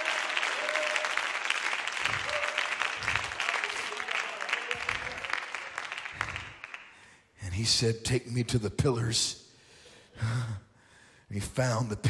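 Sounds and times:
congregation applauding: 0.0s - 7.2s.

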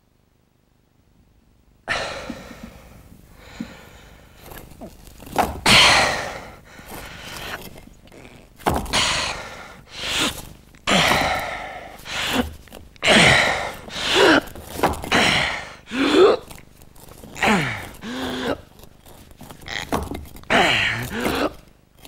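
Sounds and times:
man gasping and groaning: 8.9s - 16.6s, 17.2s - 18.7s, 20.5s - 21.7s.

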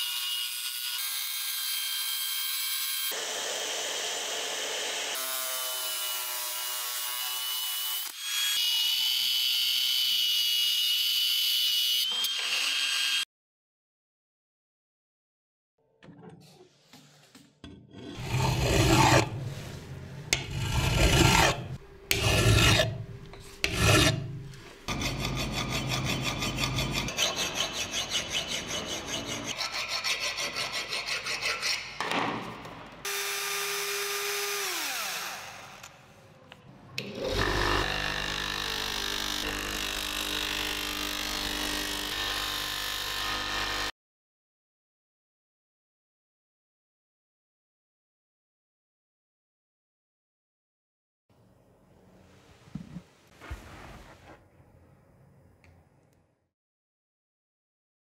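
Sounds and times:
hand file rasping on steel: 18.1s - 19.6s, 20.3s - 32.0s.

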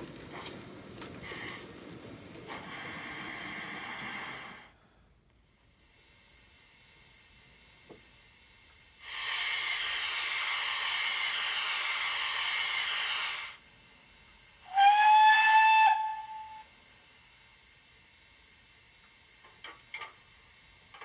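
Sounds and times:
steam hiss from drain cocks: 0.0s - 4.8s, 9.0s - 13.7s
steam whistle blast: 14.6s - 16.7s.

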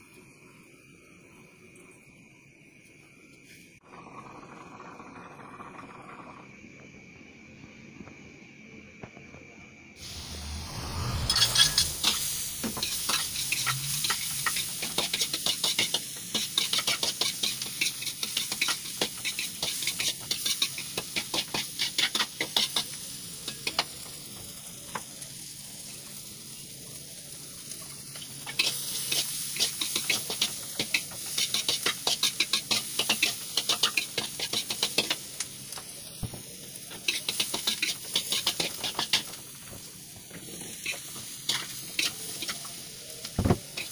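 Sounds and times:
onion and garlic sizzling in oil: 10.0s - 43.9s
metal spatula scraping pan: 10.4s - 14.9s.

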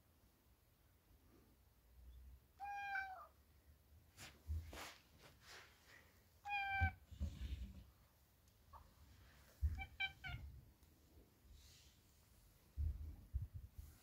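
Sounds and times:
cat meowing: 2.6s - 3.4s, 6.4s - 7.2s, 9.6s - 10.5s.

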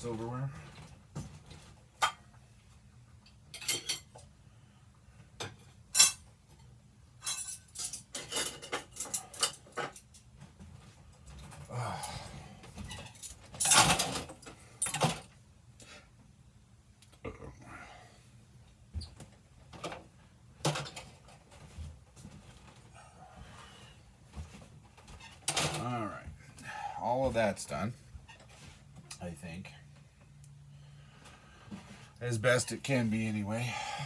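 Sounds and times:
silverware clinking and clattering: 3.5s - 4.2s, 5.4s - 10.2s, 13.0s - 15.2s.

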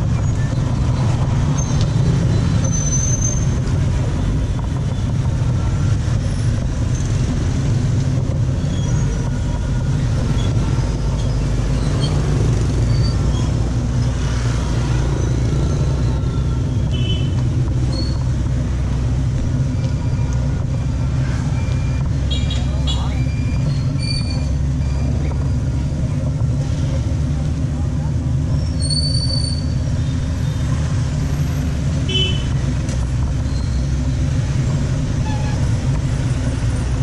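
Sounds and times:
motorbike engines droning: 0.0s - 37.0s.

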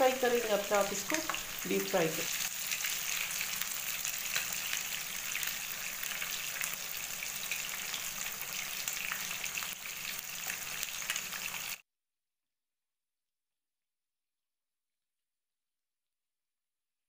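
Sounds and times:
fish sizzling in oil: 0.0s - 11.8s.

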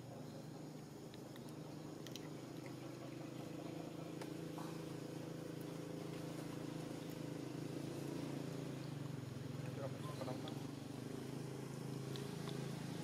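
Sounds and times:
low mechanical hum: 0.0s - 13.0s
faint clicks: 0.7s - 2.8s.

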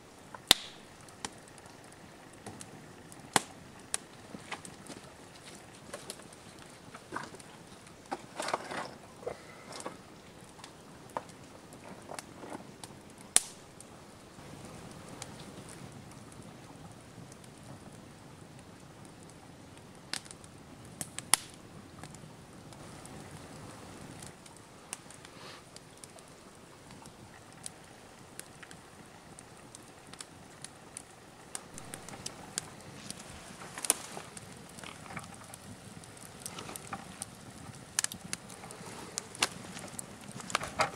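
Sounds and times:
fire crackling and popping: 0.0s - 40.9s.

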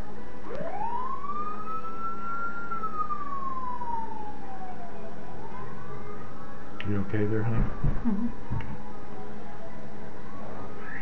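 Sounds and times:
siren wailing: 0.5s - 5.6s.

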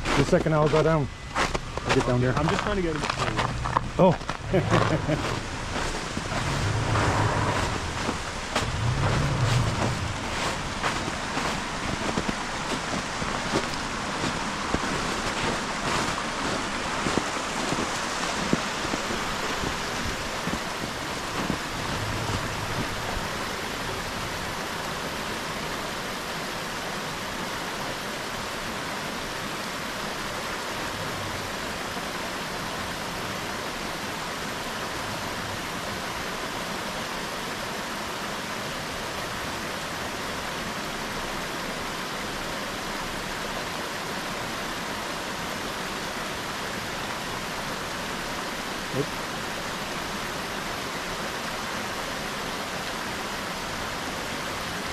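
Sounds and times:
creek rushing over rocks: 0.0s - 54.9s
faint truck engine: 3.2s - 12.7s.

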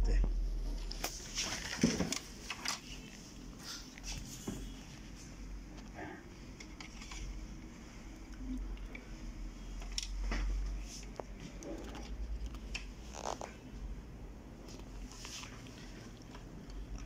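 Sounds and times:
low steady hum: 0.0s - 17.0s
plastic parts clicking and scraping: 1.4s - 3.9s, 6.6s - 7.7s.

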